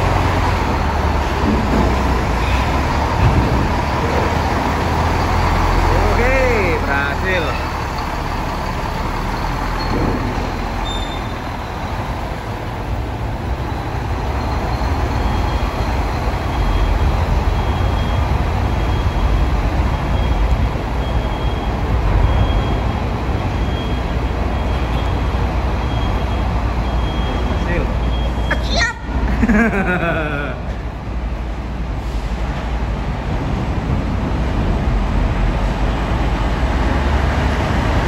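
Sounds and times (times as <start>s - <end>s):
truck diesel engines rumbling: 0.0s - 38.0s.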